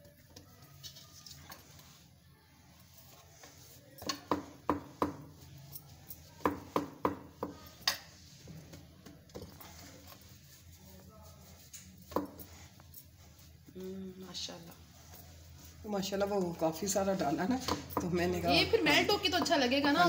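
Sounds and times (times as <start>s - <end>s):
dough knocking on wooden board: 4.2s - 5.3s, 6.4s - 7.6s.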